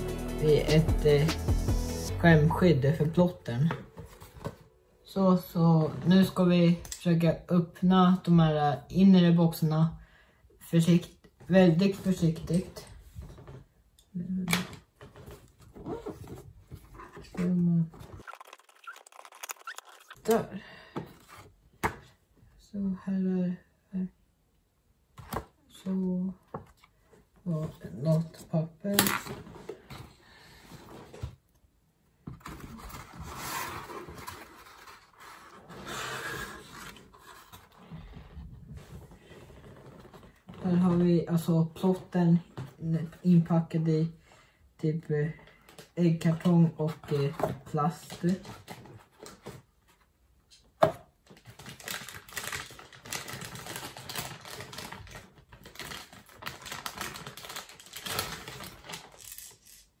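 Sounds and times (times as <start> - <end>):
cardboard and plastic rustling: 3.0 - 4.9, 14.7 - 22.2, 32.2 - 43.2, 51.1 - 59.6
pulp packaging rustling: 15.0 - 20.4, 51.2 - 59.9
plastic wrapping crinkling: 18.0 - 20.3, 51.3 - 59.8.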